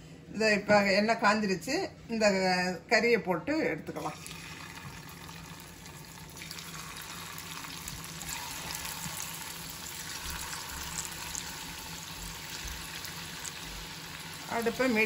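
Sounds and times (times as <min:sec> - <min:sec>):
chicken frying in hot oil: 0:04.2 - 0:15.0.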